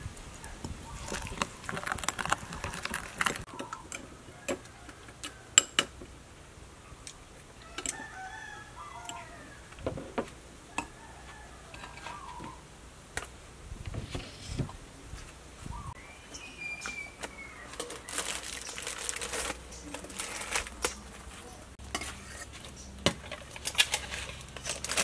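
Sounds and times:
birds calling: 0.0 - 5.5, 11.7 - 12.7, 15.6 - 21.8.

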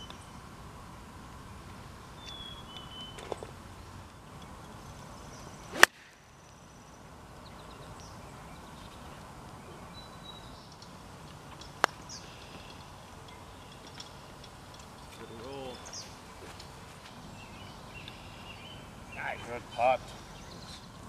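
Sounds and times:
faint birdsong: 0.0 - 21.0
golf club striking ball: 5.7 - 6.2
light golf putt click: 10.7 - 16.7, 18.0 - 18.2.

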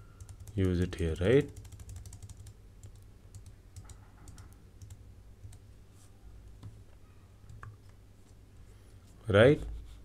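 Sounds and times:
keyboard keys clicking: 0.2 - 0.8, 1.5 - 5.6.

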